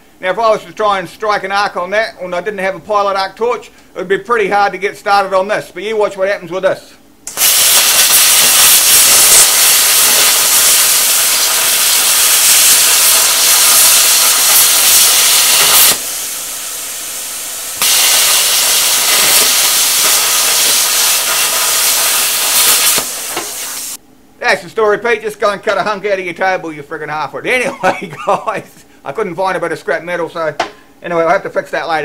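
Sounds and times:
plasma cutter hissing: 7.3 - 24.0.

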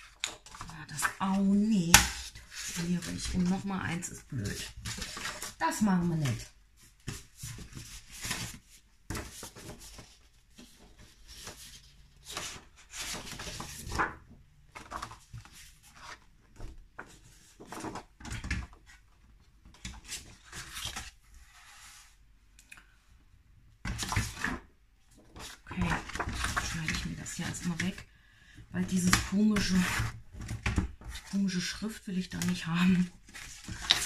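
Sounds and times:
paper rustling and sliding: 4.5 - 19.0, 19.9 - 22.2, 32.4 - 34.0.

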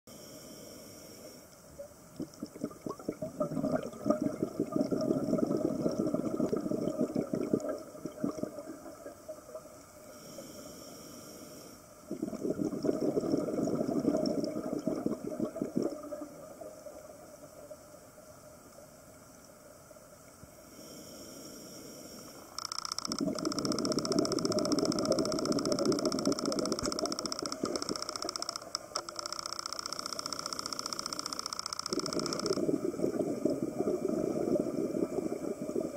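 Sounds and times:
steady hiss: 0.1 - 2.4, 9.1 - 12.1, 16.2 - 35.9
exhaled bubbles gurgling underwater: 1.8 - 10.4, 12.1 - 18.0, 23.1 - 28.9, 31.8 - 35.9.

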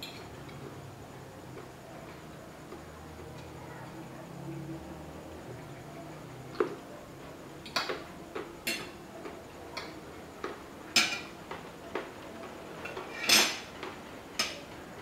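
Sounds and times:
cutlery scraping a ceramic plate: 13.2 - 13.7.

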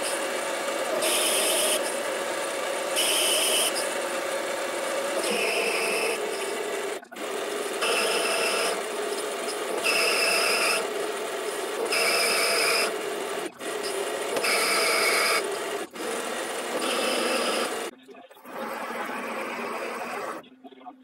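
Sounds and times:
metal lathe running: 0.0 - 20.4
high-pitched ringing cutting: 2.9 - 4.0, 7.8 - 10.9.

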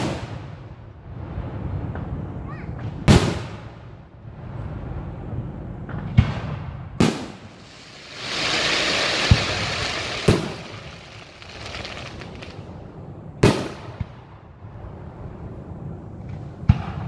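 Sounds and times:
fireworks booms: 5.8 - 12.8
fireworks hissing: 7.3 - 12.7.

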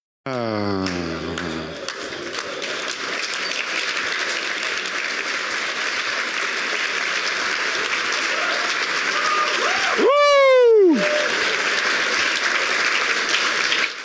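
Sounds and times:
audience applauding: 0.3 - 14.0.

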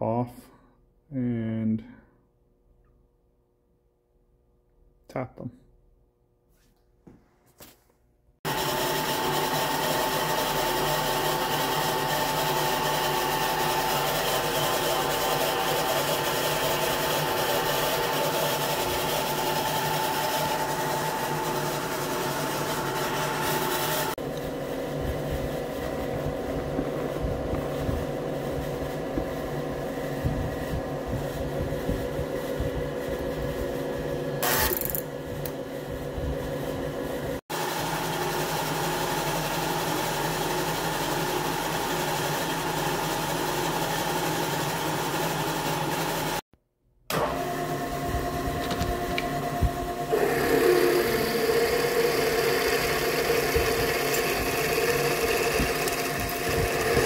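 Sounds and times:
milling machine humming: 8.5 - 46.4, 47.1 - 57.0
drilling into steel: 50.1 - 57.0.

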